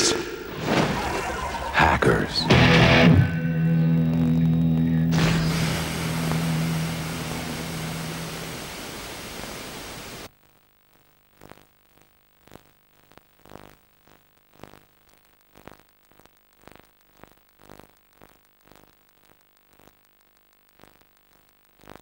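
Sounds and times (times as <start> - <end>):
noisy trailer audio: 0.0 - 9.0
tape hiss: 0.0 - 22.0.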